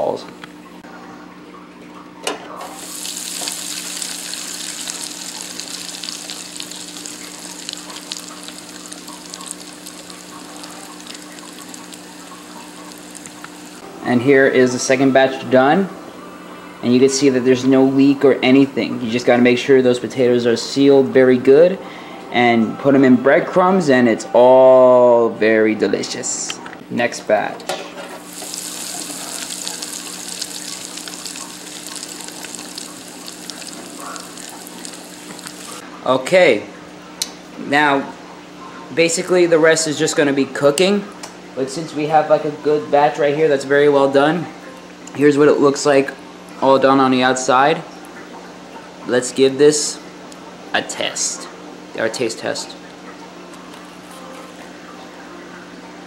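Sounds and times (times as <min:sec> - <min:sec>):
hot oil sizzling and crackling: 0:02.8 - 0:13.9, 0:28.2 - 0:35.8.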